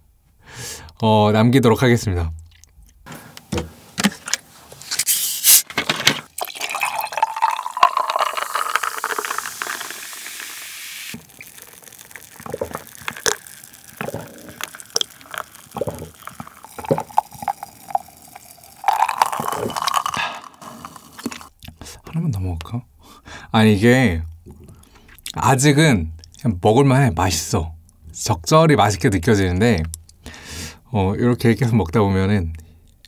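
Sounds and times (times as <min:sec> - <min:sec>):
bottle opening hiss: 0:05.0 - 0:05.7, 0:06.9 - 0:17.5
liquid pouring into a glass: 0:06.3 - 0:21.5
gulps of drinking: 0:11.2 - 0:21.5.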